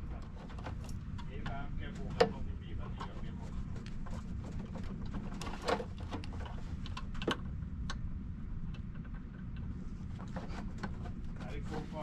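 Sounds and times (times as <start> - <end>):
low steady rumble: 0.0 - 12.0
clicks and rattles of wire connectors: 3.8 - 8.0.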